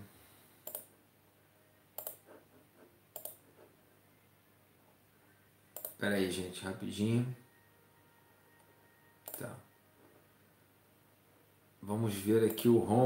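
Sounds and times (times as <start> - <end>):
computer clicks: 0.6 - 0.9, 2.0 - 2.2, 3.1 - 3.4, 5.7 - 6.0, 8.6 - 9.6, 12.4 - 12.7.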